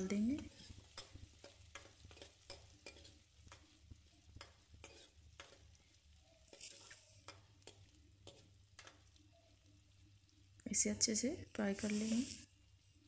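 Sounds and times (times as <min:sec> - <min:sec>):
spoon scraping a pan: 0:00.0 - 0:05.8, 0:06.4 - 0:09.1, 0:11.7 - 0:12.5
faint frying sizzle: 0:00.0 - 0:13.0.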